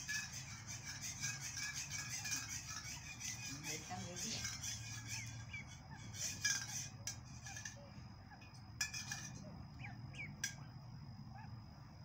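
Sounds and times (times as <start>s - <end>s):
ducklings peeping: 0.0s - 6.9s, 9.8s - 10.7s.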